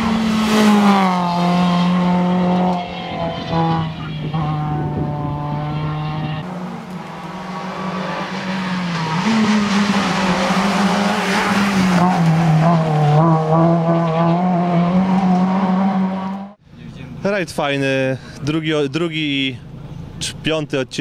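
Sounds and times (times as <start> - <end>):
rally car engine at high revs: 0.0 - 16.6.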